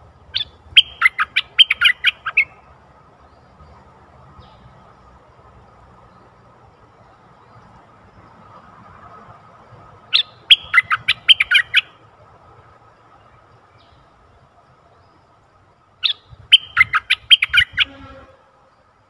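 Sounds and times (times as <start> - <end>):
bulbul singing: 0.3 - 3.8, 10.1 - 12.0, 16.0 - 18.2.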